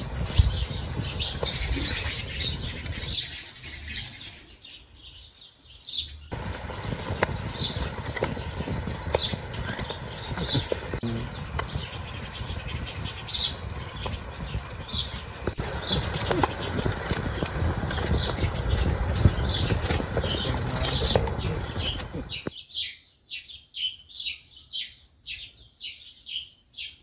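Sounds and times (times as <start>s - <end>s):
low steady rumble: 6.3s - 22.5s.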